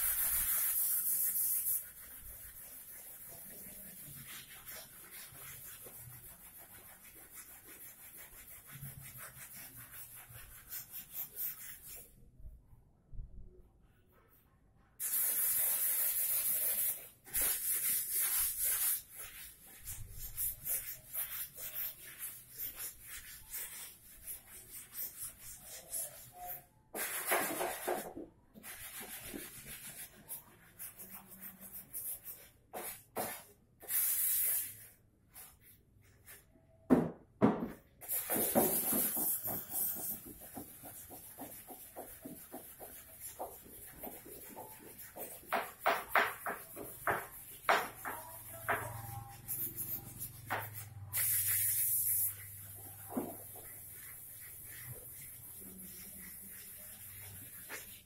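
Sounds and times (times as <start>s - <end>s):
compressed air hissing from air gun: 15.0s - 16.8s, 51.2s - 52.4s.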